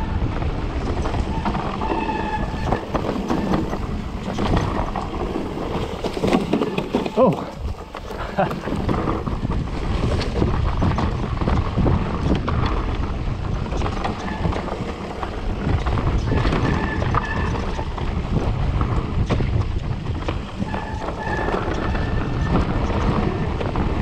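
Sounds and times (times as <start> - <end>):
bike rattling and knocking: 0.0 - 24.0
bike tyres rumbling: 0.0 - 24.0
wind buffeting microphone: 0.0 - 24.0
short high squeaks: 1.2 - 4.5, 20.6 - 22.6.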